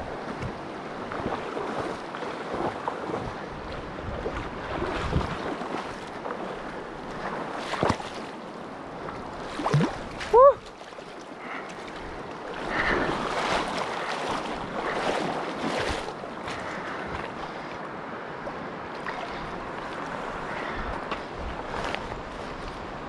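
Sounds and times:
stream rushing: 0.0 - 23.0
water splashing around a net: 4.2 - 8.4, 9.4 - 16.7.

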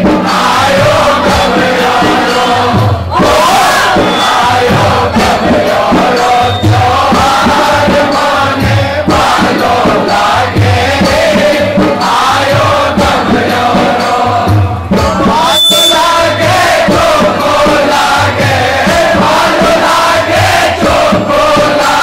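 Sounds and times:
low regular drum beat: 0.0 - 22.0
men singing in unison: 0.0 - 22.0.

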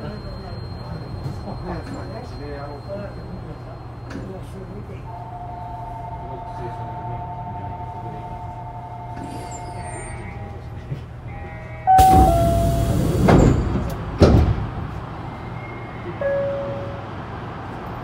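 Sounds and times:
train low hum: 0.0 - 18.0
two-note door chime: 11.9 - 13.1
doors thumping shut: 11.9 - 14.8
sliding doors rushing: 12.0 - 15.1.

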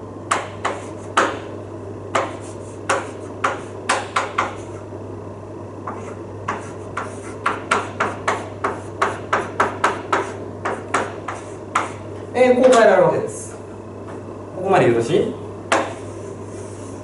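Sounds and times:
steady low hum: 0.0 - 17.0
chalk tapping on blackboard: 0.3 - 1.5, 2.1 - 4.8, 5.8 - 12.1, 15.7 - 16.0.

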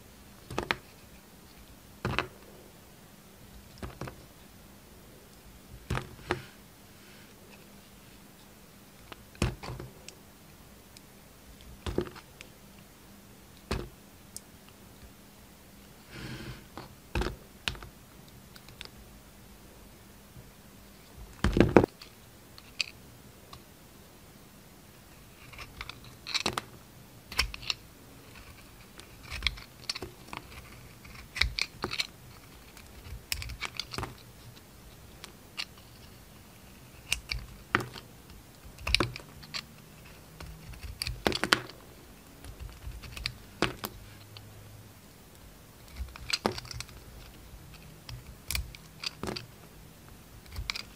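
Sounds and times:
knife cutting soap: 27.3 - 34.6, 35.2 - 41.8, 50.4 - 50.9
knife shaving soap: 27.3 - 38.0, 38.6 - 41.4, 42.4 - 43.4.

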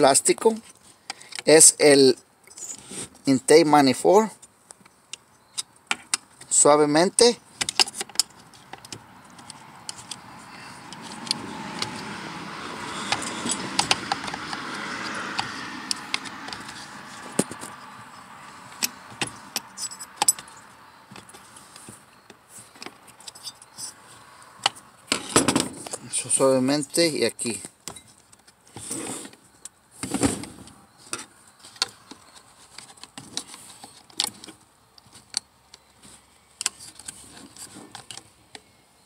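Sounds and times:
clicks of tools and plastic parts: 7.6 - 10.2, 13.0 - 17.8, 36.6 - 38.6.

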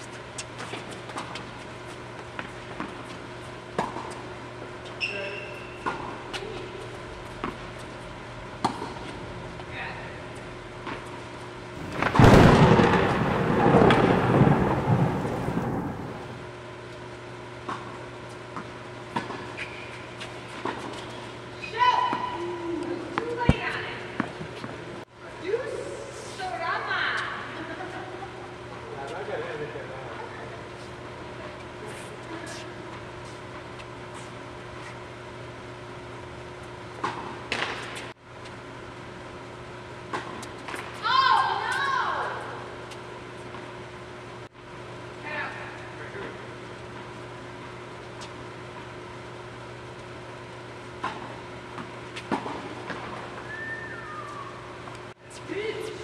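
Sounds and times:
air handling hum: 0.0 - 56.0
tennis balls struck by rackets: 8.6 - 9.0
loud rumble: 11.8 - 16.5.

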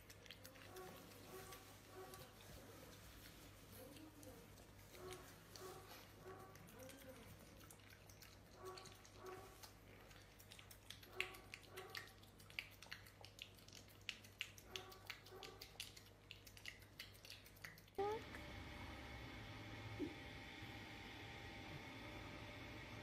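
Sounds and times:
dog eating wet food: 0.0 - 18.4.

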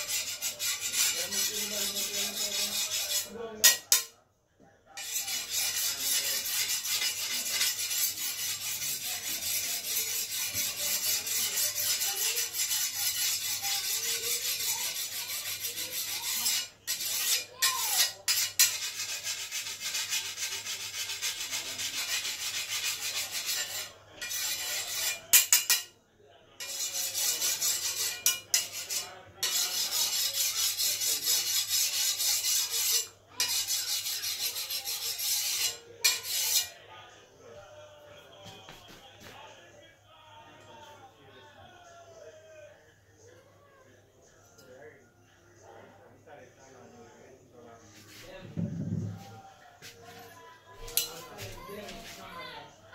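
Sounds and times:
file rasping on steel blade: 0.0 - 4.1, 5.0 - 25.9, 26.6 - 36.8.

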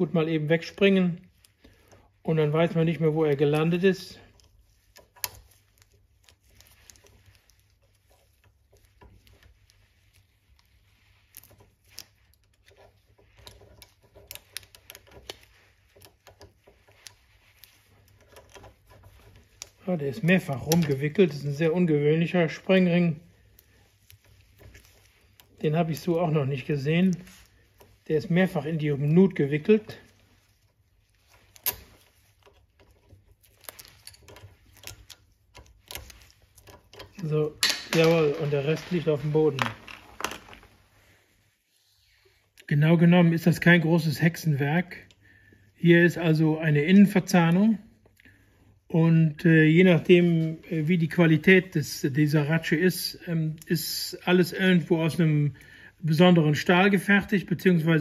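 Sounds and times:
small metal clicks and scrapes: 0.5 - 40.8.

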